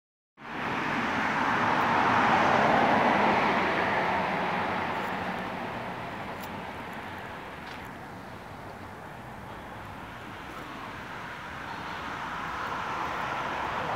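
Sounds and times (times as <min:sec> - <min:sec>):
car driving past on asphalt: 0:00.6 - 0:06.8.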